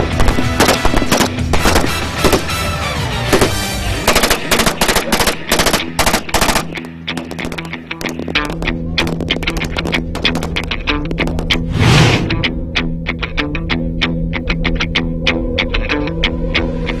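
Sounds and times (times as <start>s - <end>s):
rapid rifle fire: 0.0s - 2.6s, 3.3s - 11.4s
background music: 0.0s - 17.0s.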